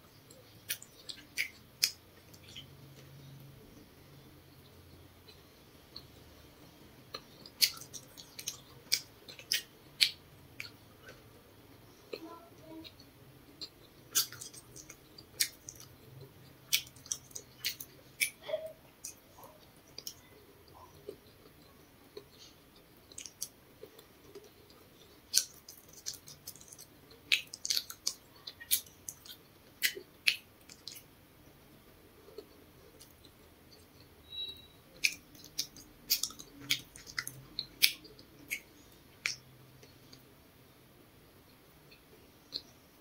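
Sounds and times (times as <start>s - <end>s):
person chewing: 0.2s - 3.2s, 7.0s - 12.3s, 12.9s - 31.1s, 32.2s - 40.3s
wet mouth clicks and lip smacks: 0.3s - 2.7s, 7.1s - 11.2s, 13.6s - 15.9s, 16.7s - 18.4s, 23.1s - 31.1s, 35.0s - 40.2s.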